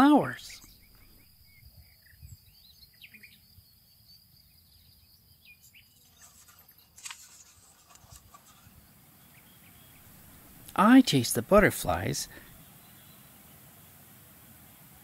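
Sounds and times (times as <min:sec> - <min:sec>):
faint small birds chirping: 0:00.0 - 0:15.0
book page turning: 0:06.0 - 0:08.8.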